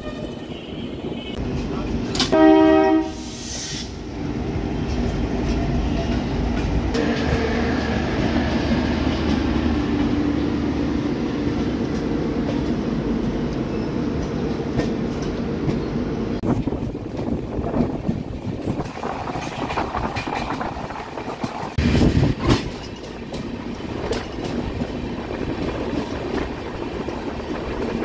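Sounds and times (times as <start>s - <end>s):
train coaches rumbling: 0.0s - 28.0s
wheels clicking over rail joints: 22.4s - 28.0s.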